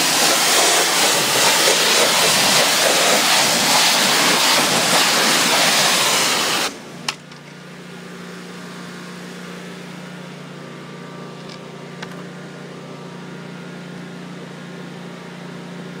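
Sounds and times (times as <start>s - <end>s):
pressure washer spray hissing: 0.0s - 6.8s
low machine hum: 6.8s - 16.0s.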